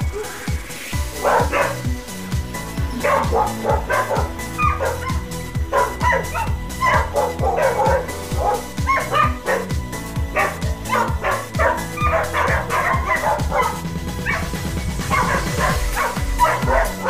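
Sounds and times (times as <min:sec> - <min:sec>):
dogs barking and yapping: 0:00.0 - 0:17.0
music with thumping beat: 0:00.0 - 0:17.0.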